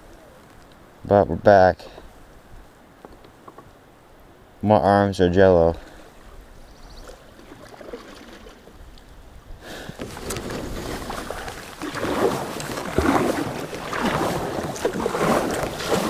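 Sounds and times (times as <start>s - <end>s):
kayak paddle splashing in water: 7.0s - 8.8s, 9.8s - 16.0s.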